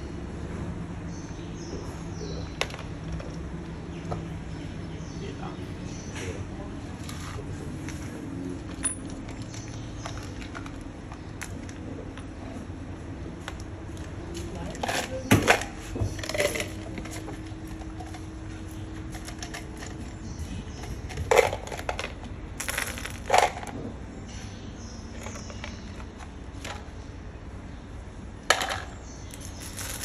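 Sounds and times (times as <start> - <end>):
steel ball bearings clattering: 19.1 - 23.7, 28.5 - 30.0.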